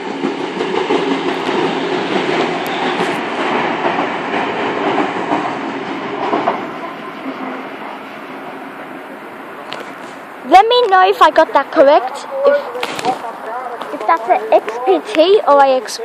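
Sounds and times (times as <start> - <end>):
train wheels rumbling on rail: 0.0 - 16.0.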